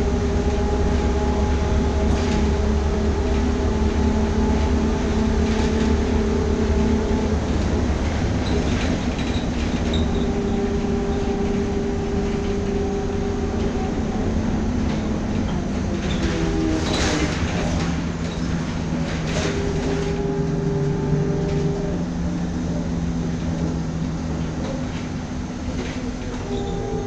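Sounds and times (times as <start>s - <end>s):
bus body rattling: 0.0s - 27.0s
tyre and road rumble: 0.0s - 27.0s
electric traction drive humming: 17.3s - 27.0s.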